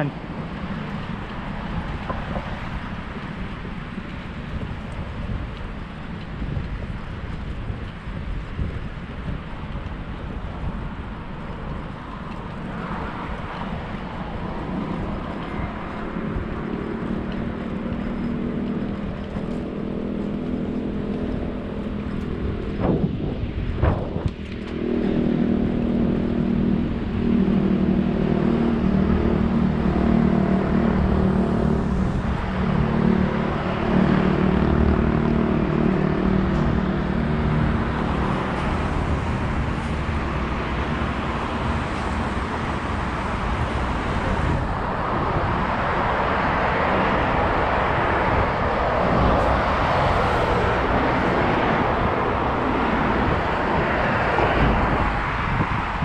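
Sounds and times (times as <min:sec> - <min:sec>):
road traffic: 0:00.0 - 0:56.0.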